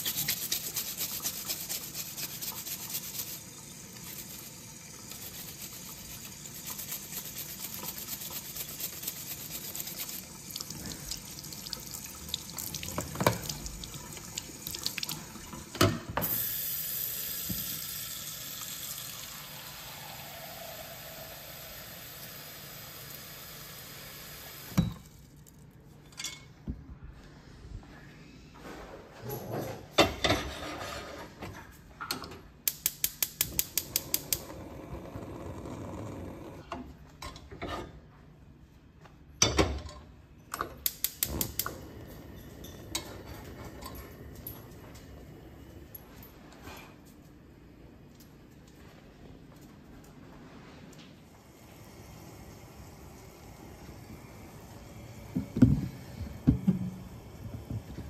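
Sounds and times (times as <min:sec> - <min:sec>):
scrub brush scrubbing: 0:00.0 - 0:10.4
faucet running into sink: 0:09.7 - 0:25.1.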